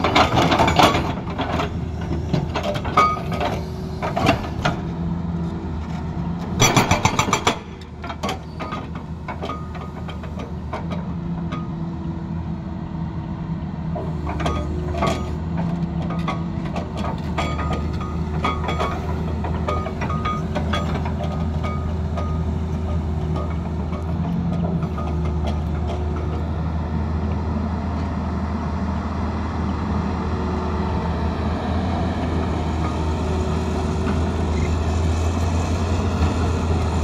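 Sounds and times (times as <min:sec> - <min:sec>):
excavator diesel engine running: 0:00.0 - 0:37.0.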